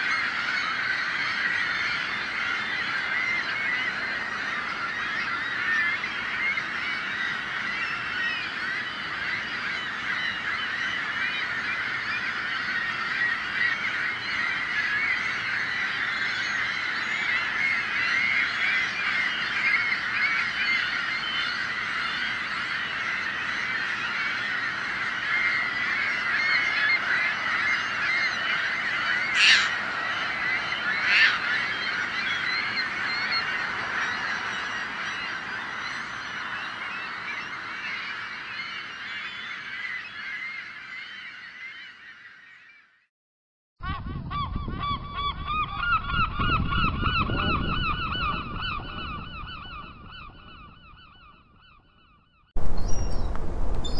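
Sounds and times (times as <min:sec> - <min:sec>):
gulls calling: 0:00.0 - 0:42.7, 0:52.6 - 0:53.9.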